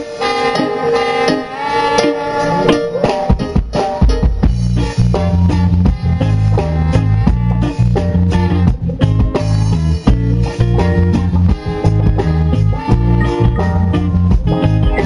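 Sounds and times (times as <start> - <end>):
electric guitar notes: 0.0 - 15.0
drum hits: 0.2 - 6.2
deep bass line: 2.6 - 15.0.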